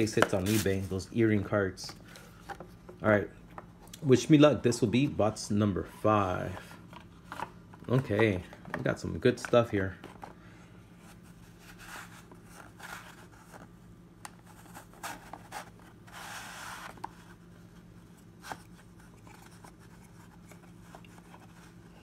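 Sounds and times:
cards scraping and rubbing: 0.0 - 1.0, 11.1 - 22.0
low steady hum: 0.0 - 22.0.

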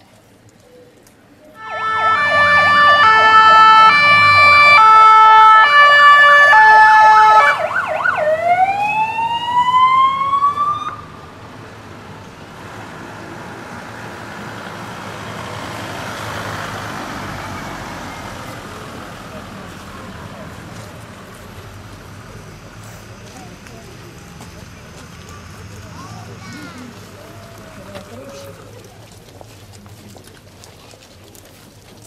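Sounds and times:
fire engine siren: 1.6 - 11.5
vehicle driving up: 1.6 - 29.4.

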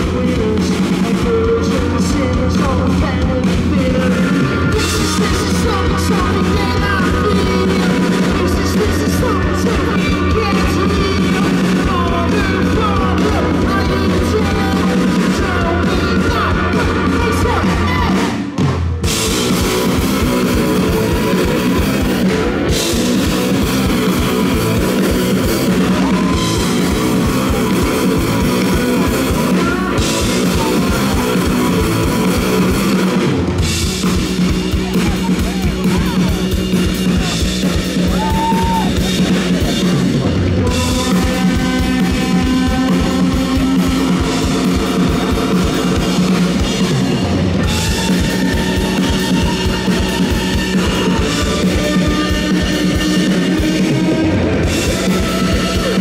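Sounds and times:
driving drum kit: 0.0 - 56.0
electric guitars: 0.0 - 56.0
live rock band playing: 0.0 - 56.0.

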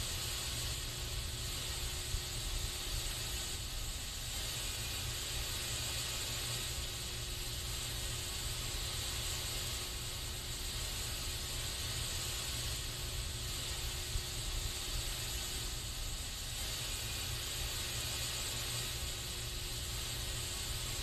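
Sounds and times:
aerosol spray can hissing: 0.0 - 21.0.

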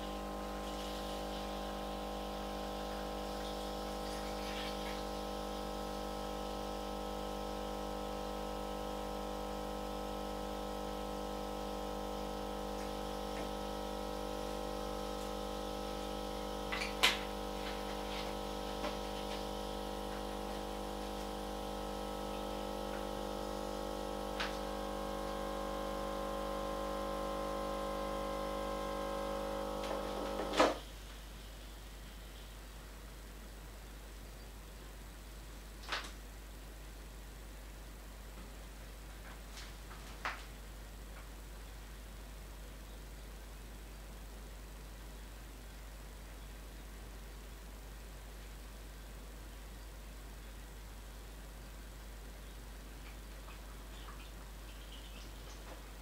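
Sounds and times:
espresso machine pump humming: 0.0 - 30.8.

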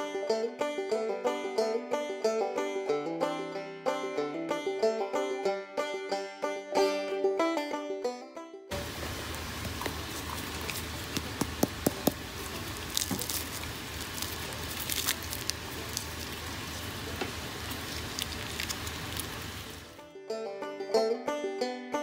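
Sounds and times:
fried pastry crackling: 8.7 - 20.0.

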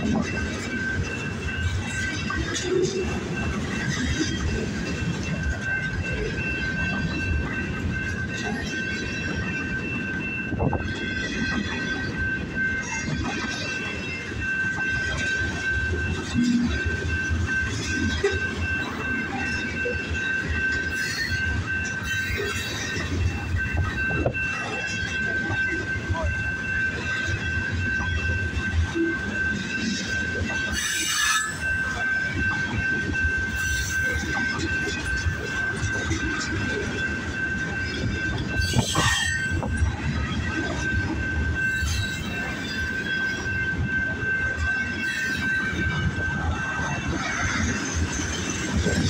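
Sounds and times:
train cars rumbling on rails: 0.0 - 49.0
high-pitched wheel squeal: 30.7 - 31.7, 38.6 - 39.7.

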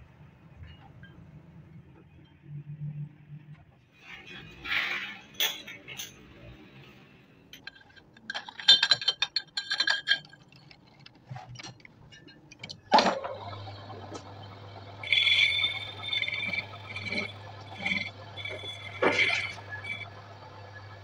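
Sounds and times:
lathe motor humming: 12.9 - 21.0
high ringing squeal of cutting: 13.4 - 21.0.

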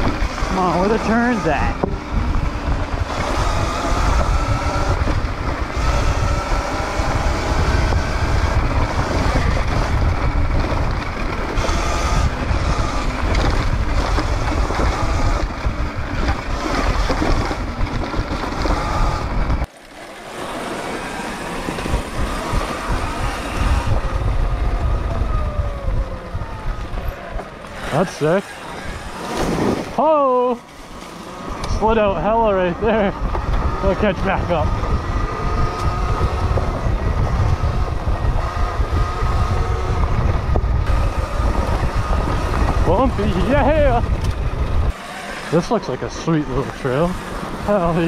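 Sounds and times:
wind buffeting microphone: 0.0 - 19.7, 20.3 - 48.0
electric motor whine: 0.0 - 48.0.

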